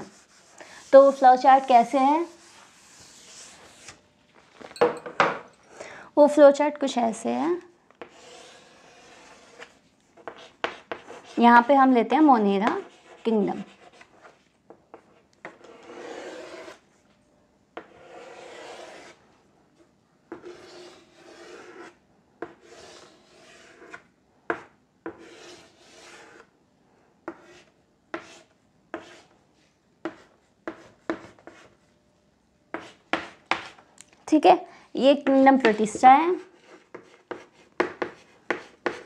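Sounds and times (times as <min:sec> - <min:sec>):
chalk scraping on chalkboard: 0:00.0 - 0:04.0, 0:08.0 - 0:16.8, 0:17.8 - 0:19.2, 0:20.3 - 0:26.5, 0:27.2 - 0:31.8, 0:32.7 - 0:33.8, 0:35.2 - 0:39.0.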